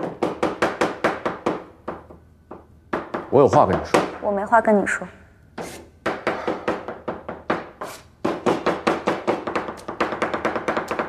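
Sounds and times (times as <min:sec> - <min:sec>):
knife chopping on cutting board: 0:05.6 - 0:11.0.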